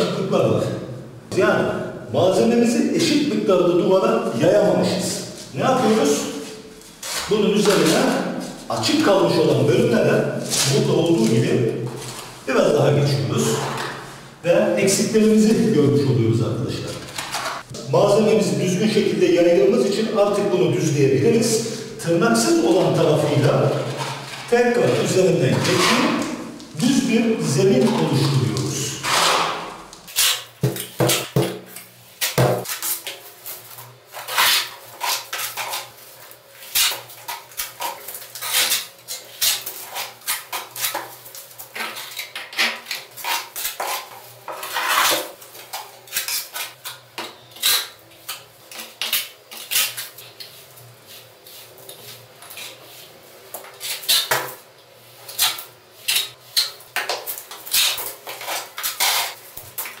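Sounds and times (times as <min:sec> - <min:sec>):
trowel scraping plaster on wall: 0:05.3 - 0:08.6, 0:23.8 - 0:26.4, 0:27.7 - 0:31.5, 0:32.2 - 0:54.6, 0:55.2 - 0:59.4.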